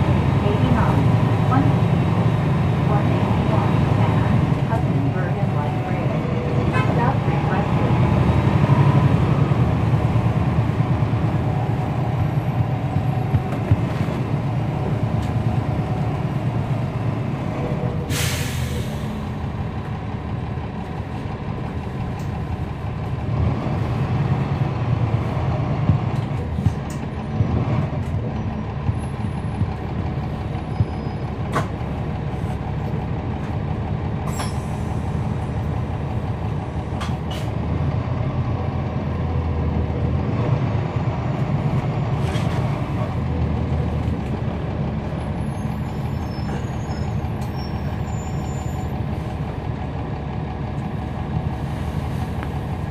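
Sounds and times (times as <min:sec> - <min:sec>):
bus diesel engine running: 0:00.0 - 0:52.9
air brakes hiss: 0:18.1 - 0:19.2, 0:34.3 - 0:35.2.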